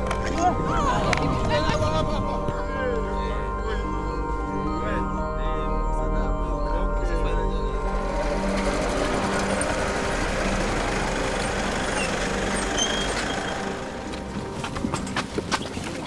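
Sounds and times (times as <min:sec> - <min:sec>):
vehicle driving past: 0:07.7 - 0:15.2.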